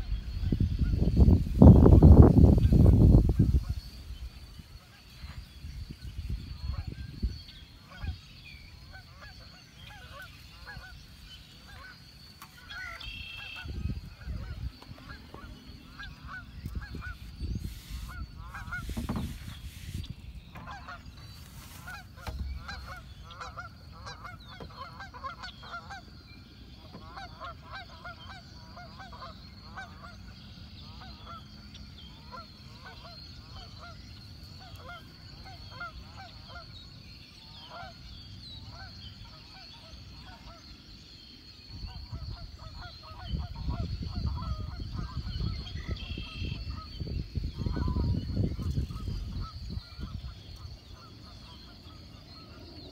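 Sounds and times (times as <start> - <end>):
geese honking: 7.8 - 8.2, 8.8 - 26.1, 26.9 - 30.2, 32.2 - 36.7.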